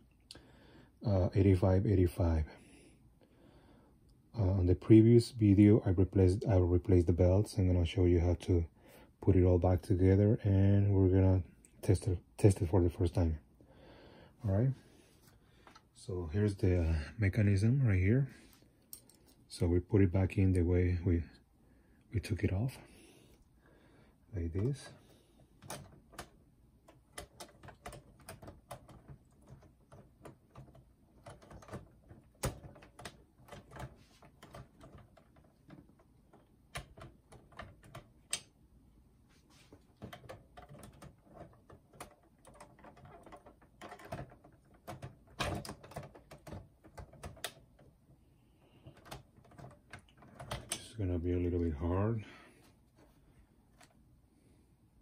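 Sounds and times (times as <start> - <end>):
plastic and metal parts clicking: 25.6 - 38.6, 39.8 - 50.9.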